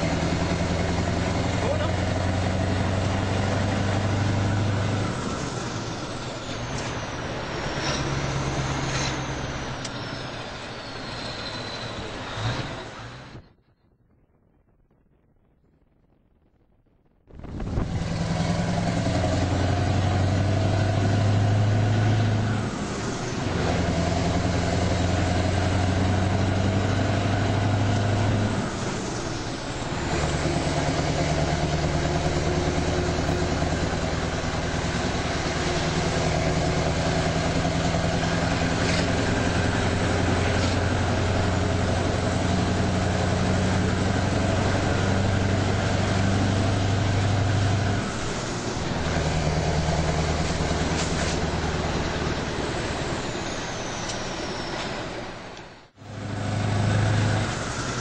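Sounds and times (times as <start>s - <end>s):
heavy vehicle engine under load: 0.0s - 13.4s, 17.4s - 58.0s.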